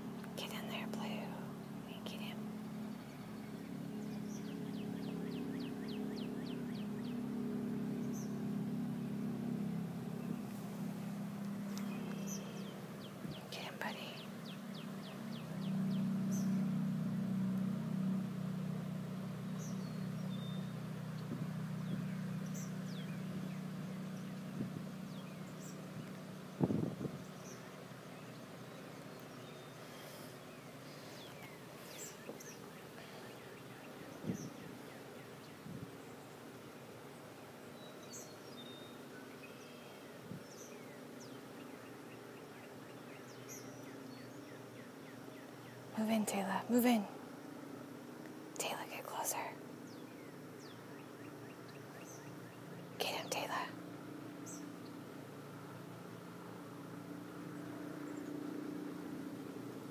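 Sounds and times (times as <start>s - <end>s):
steady low drone: 0.0s - 36.9s
faint steady hum: 0.0s - 59.9s
bird chirps: 2.0s - 7.3s, 11.7s - 16.8s, 27.2s - 36.5s, 37.6s - 47.0s.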